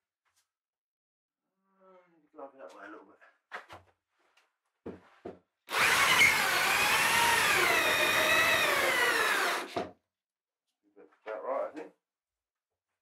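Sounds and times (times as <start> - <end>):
electric drill boring into wood: 5.7 - 9.9.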